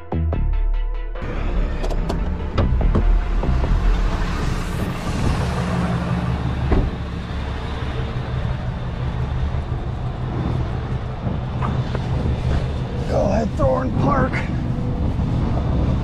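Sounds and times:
truck engine idling: 0:01.2 - 0:13.5.

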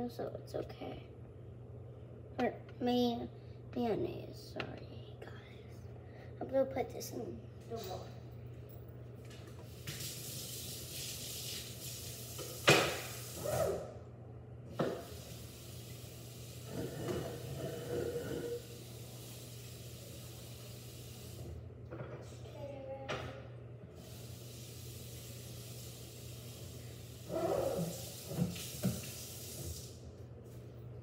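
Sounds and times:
faucet running into sink: 0:09.6 - 0:13.4, 0:27.0 - 0:30.0.

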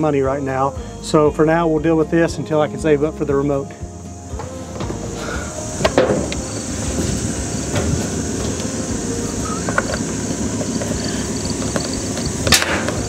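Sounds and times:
electric winch motor droning: 0:04.3 - 0:13.0.

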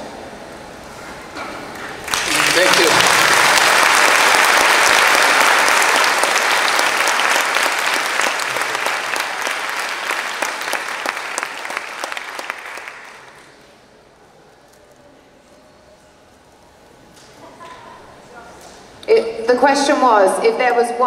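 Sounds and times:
audience applauding: 0:02.0 - 0:13.7.

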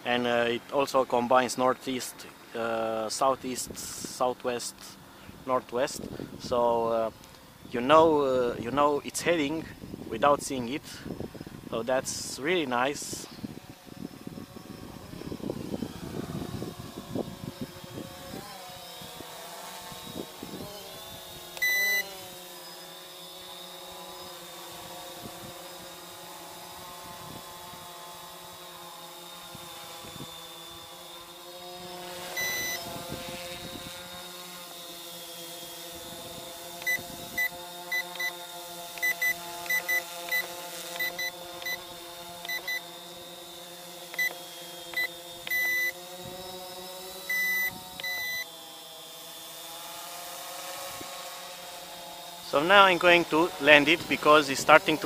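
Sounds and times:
drone motors whining: 0:00.0 - 0:55.0
wind buffeting microphone: 0:13.2 - 0:19.3, 0:32.8 - 0:34.1
short electronic beeps: 0:21.6 - 0:22.1, 0:32.4 - 0:32.8, 0:36.8 - 0:38.3, 0:39.0 - 0:41.8, 0:42.5 - 0:42.8, 0:45.0 - 0:46.0, 0:47.3 - 0:48.4.

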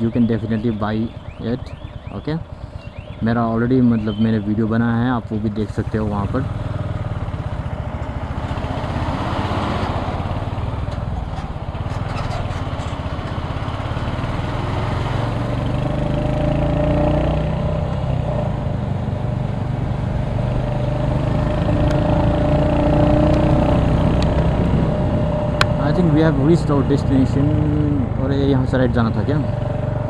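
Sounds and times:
motorcycle engine riding: 0:00.0 - 0:30.0.

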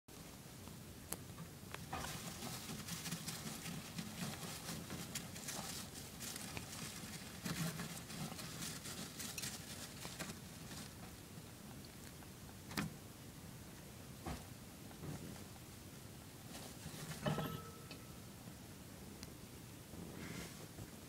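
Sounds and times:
hamster digging in wood shavings: 0:01.8 - 0:11.2.

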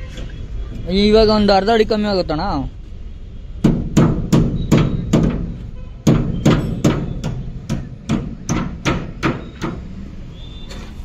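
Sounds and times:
hammer striking metal: 0:03.6 - 0:09.9.

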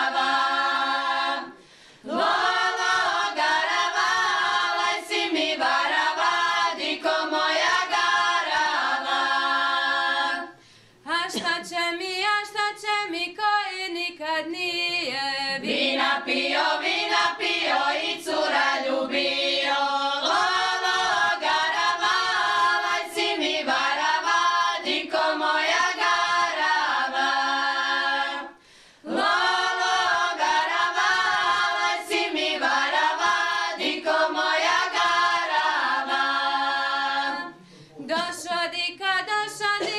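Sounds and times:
women singing a cappella: 0:00.0 - 0:39.9.

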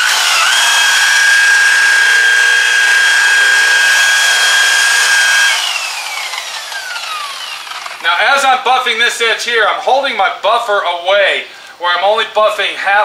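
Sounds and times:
rotary buffer motor whining: 0:00.0 - 0:08.0.

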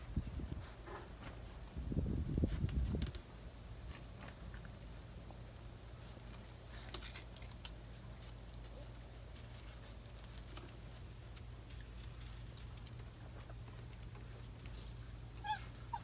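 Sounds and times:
puppy claws clicking on concrete: 0:06.2 - 0:15.6.

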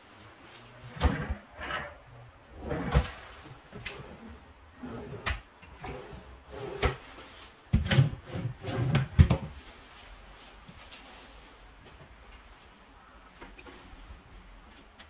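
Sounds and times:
drawers sliding open and shut: 0:00.6 - 0:09.6.

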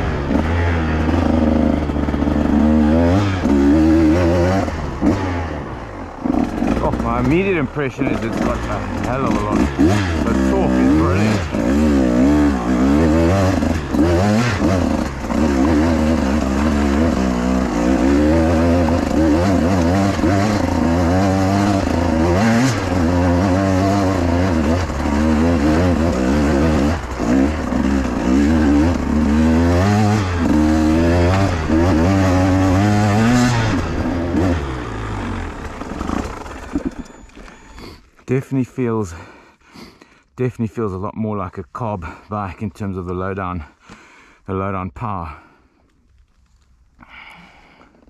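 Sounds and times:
two-stroke engine revving: 0:00.0 - 0:37.9.

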